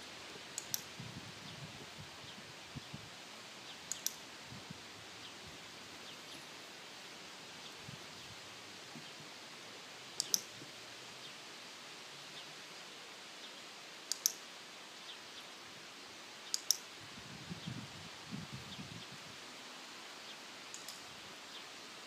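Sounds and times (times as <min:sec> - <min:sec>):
clicker double clicks: 0:00.6 - 0:00.9, 0:03.9 - 0:04.2, 0:10.2 - 0:10.5, 0:14.1 - 0:14.4, 0:16.5 - 0:16.8, 0:20.7 - 0:21.0.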